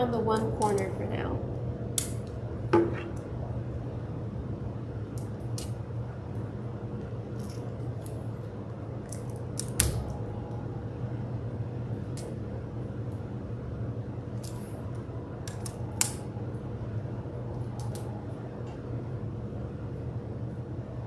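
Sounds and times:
steady low hum: 0:00.0 - 0:21.0
tape clicks and snaps: 0:00.4 - 0:00.9, 0:01.9 - 0:02.4, 0:05.1 - 0:05.8, 0:09.0 - 0:10.2, 0:15.4 - 0:16.3, 0:17.7 - 0:18.1.

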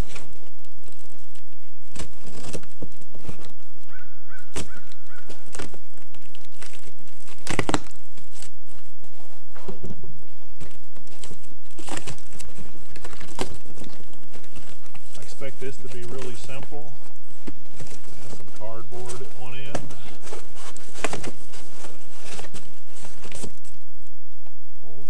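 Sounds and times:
plastic and cardboard crinkling: 0:00.0 - 0:23.8
knocks and scuffs: 0:04.5 - 0:23.6.

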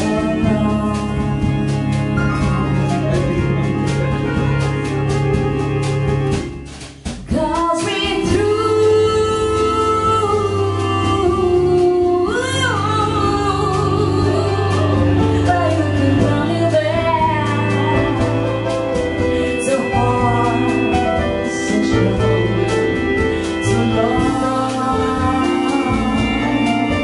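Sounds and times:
woman singing: 0:00.0 - 0:04.0, 0:07.2 - 0:27.0
jazz trio playing: 0:00.0 - 0:27.0.

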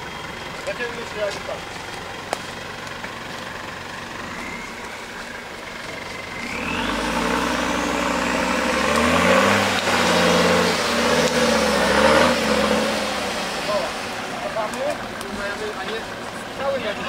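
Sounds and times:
buggy engine revving hard: 0:03.8 - 0:17.0.

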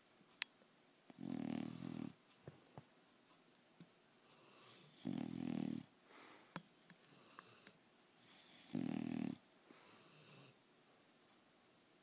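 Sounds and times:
dog snoring: 0:01.1 - 0:02.2, 0:04.4 - 0:05.9, 0:08.2 - 0:10.6.

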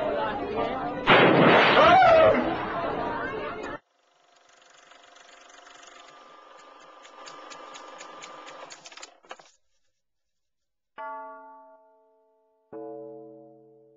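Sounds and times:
small machine whirring with clicking: 0:03.8 - 0:09.5.

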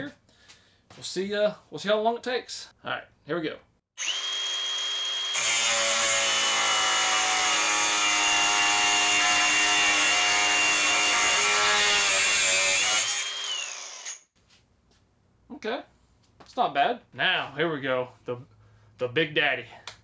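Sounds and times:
angle grinder motor whine: 0:04.0 - 0:05.6, 0:13.0 - 0:14.2
grinder disc cutting steel bar: 0:04.0 - 0:14.3.

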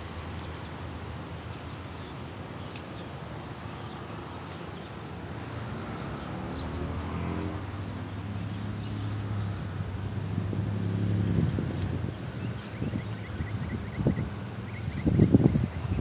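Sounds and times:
high bird chirps: 0:12.4 - 0:16.0.

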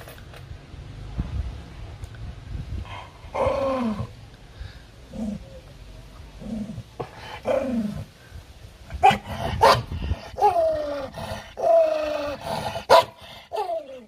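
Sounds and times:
dog growling: 0:05.1 - 0:05.6, 0:06.4 - 0:08.1, 0:09.0 - 0:14.0
dog barking: 0:09.0 - 0:10.6, 0:12.9 - 0:13.8.

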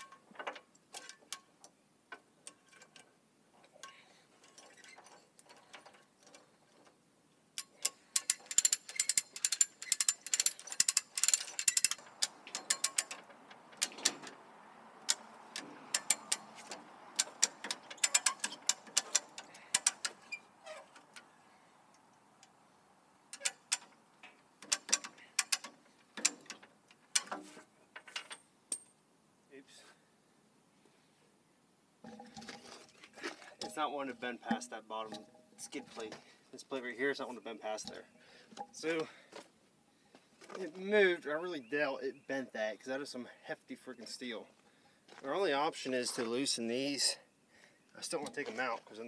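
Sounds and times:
ratchet clicking: 0:07.6 - 0:13.2, 0:15.9 - 0:16.5.

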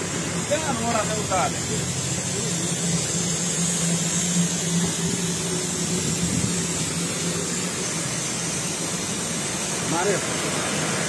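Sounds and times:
steam locomotive hissing: 0:00.0 - 0:11.0
low hum: 0:01.6 - 0:09.9.

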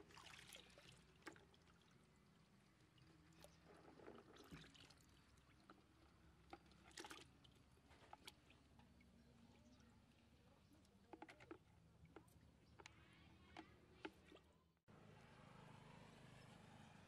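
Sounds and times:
water splashing in a bucket: 0:00.0 - 0:08.7.

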